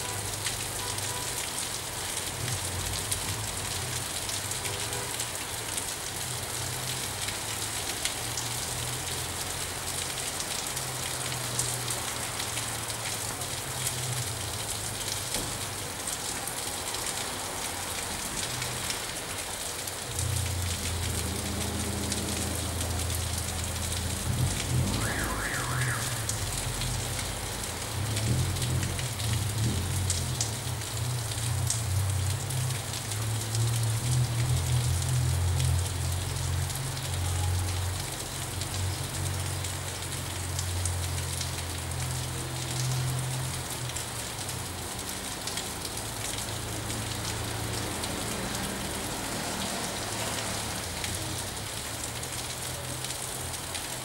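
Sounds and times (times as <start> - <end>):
rain on pine branches: 0.0 - 54.0
brief higher sound: 24.9 - 26.7.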